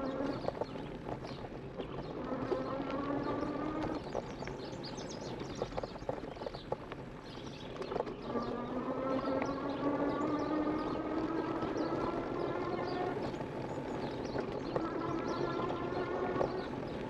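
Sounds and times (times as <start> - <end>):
birds chirping: 0.0 - 17.0
tyres rolling over dirt trail: 0.0 - 17.0
electric motor whine: 1.8 - 4.2, 8.2 - 17.0.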